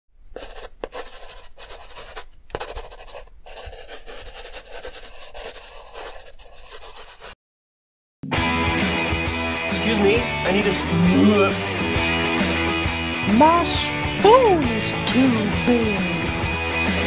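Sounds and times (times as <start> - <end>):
pen scratching on paper: 0.3 - 7.4.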